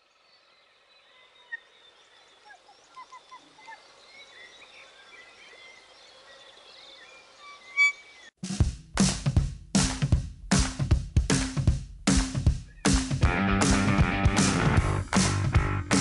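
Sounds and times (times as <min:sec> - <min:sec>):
birdsong chorus: 0:00.0 - 0:08.4, 0:12.4 - 0:13.2
loud bird call: 0:07.4 - 0:08.3.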